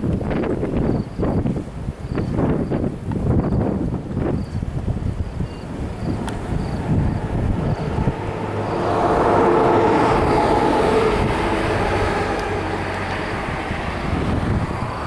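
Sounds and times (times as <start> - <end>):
wind buffeting microphone: 0.0 - 15.0
vehicle passing by humming: 5.3 - 15.0.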